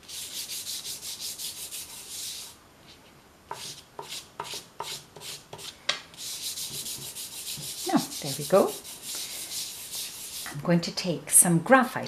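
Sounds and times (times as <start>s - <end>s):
hand rubbing chalk pastel on paper: 0.0s - 2.6s, 3.5s - 10.5s.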